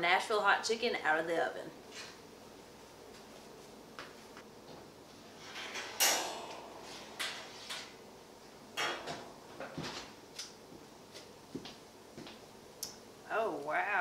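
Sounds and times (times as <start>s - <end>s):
oven door and rack clanking: 5.3s - 8.0s, 8.7s - 10.2s
metallic clank with ring: 6.0s - 7.0s.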